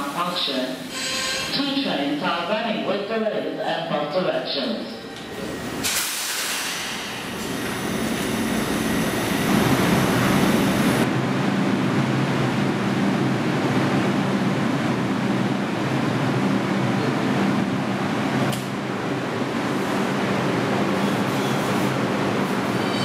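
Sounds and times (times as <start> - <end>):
subway train rumble: 4.7 - 23.0.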